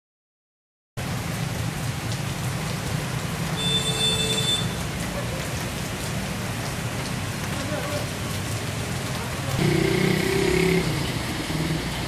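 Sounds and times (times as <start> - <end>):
heavy rain on a street: 1.0 - 12.0
passing traffic rumble: 1.0 - 12.0.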